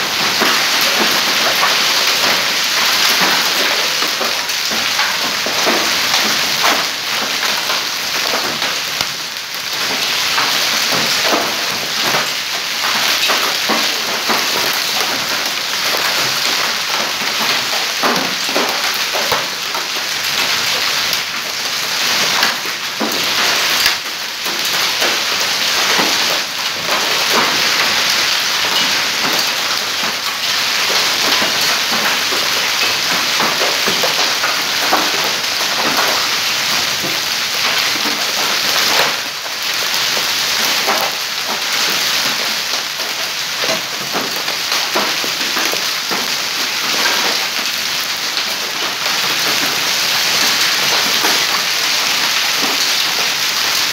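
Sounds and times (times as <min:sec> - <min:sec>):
hail and heavy rain on stone: 0:00.0 - 0:53.9.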